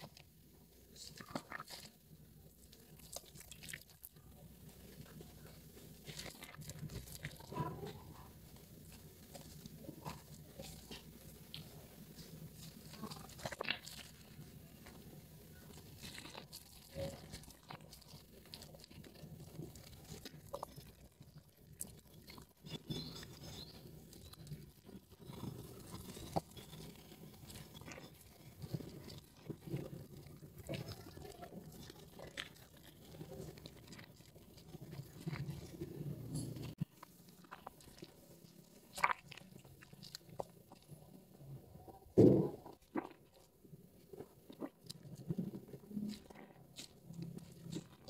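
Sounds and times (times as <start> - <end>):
foam crackling and popping: 0.0 - 48.0
wet soap squelching: 0.0 - 48.0.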